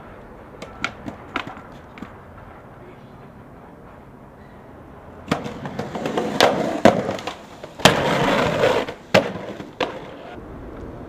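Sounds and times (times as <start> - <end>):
skateboard wheels rolling: 0.0 - 4.2, 5.1 - 11.0
skateboard clacking on concrete: 0.5 - 2.6, 5.2 - 10.4.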